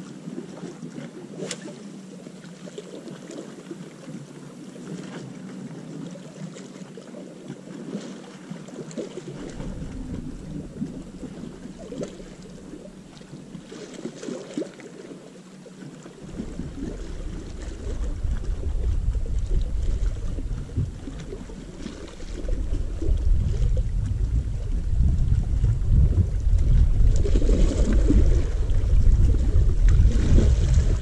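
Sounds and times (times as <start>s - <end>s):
sea washing along shore: 0.0s - 31.0s
wind on microphone: 9.3s - 13.8s, 16.2s - 31.0s.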